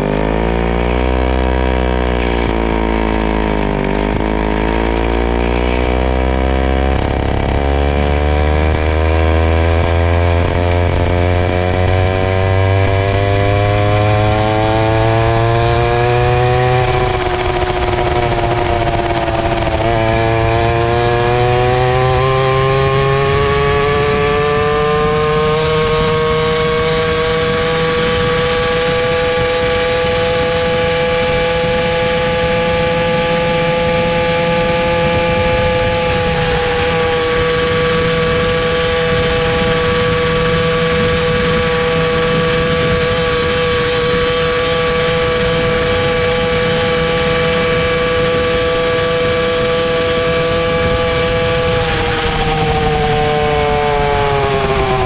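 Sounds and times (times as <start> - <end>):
moped engine at high revs: 0.0 - 55.0.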